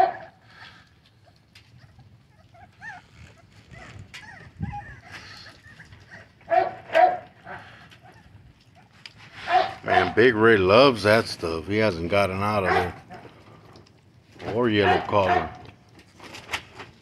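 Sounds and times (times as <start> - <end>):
puppy barking: 0.0 - 0.4, 6.1 - 8.2, 8.8 - 10.2, 12.6 - 13.3, 14.8 - 15.6
puppies whining: 1.1 - 10.2.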